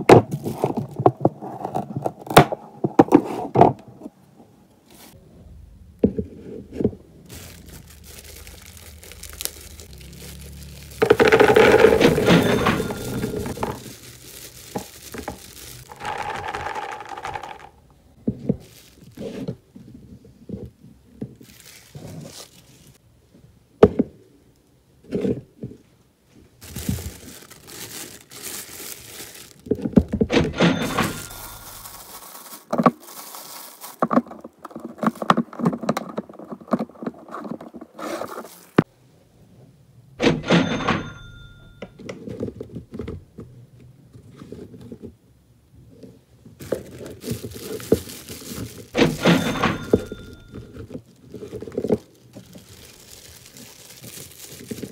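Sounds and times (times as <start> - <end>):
plastic bags crinkling: 7.2 - 17.8, 18.4 - 19.6, 21.3 - 23.0, 26.6 - 35.6, 38.1 - 38.9, 46.6 - 54.9
peanuts rattling into plastic box: 7.3 - 17.8, 26.6 - 35.4, 46.6 - 54.9
containers knocking: 15.9 - 17.8.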